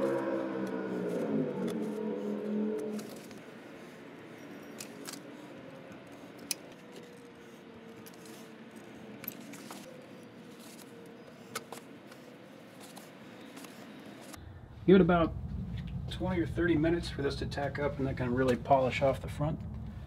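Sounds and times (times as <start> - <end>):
low steady hum: 14.3 - 20.0.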